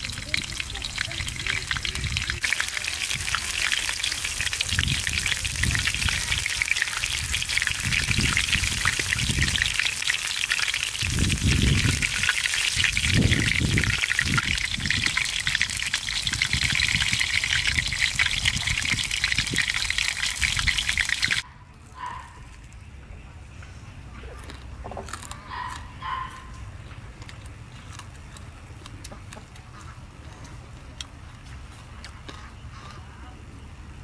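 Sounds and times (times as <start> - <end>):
oil sizzling in a wok: 0.0 - 21.4.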